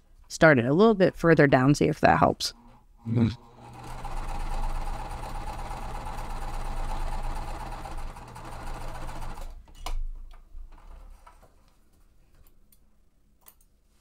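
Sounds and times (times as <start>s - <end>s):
sewing machine stitching: 3.4s - 9.6s.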